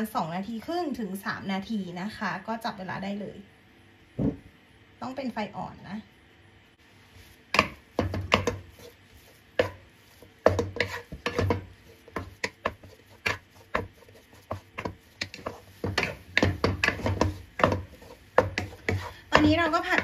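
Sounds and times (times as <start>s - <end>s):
spatula scraping dough in pan: 7.1s - 20.0s.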